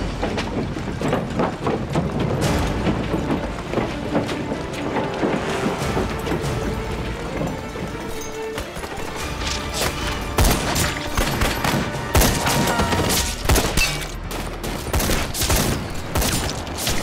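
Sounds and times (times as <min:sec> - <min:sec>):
film score music: 0:00.0 - 0:17.0
rifle and machine-gun shots: 0:10.4 - 0:17.0.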